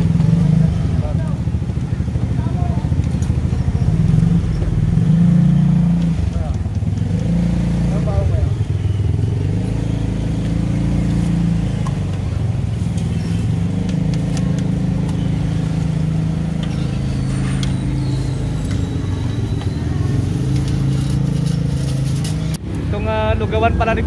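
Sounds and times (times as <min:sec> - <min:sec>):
vehicle engine humming: 0:00.0 - 0:24.0
utensils clinking: 0:16.4 - 0:22.6.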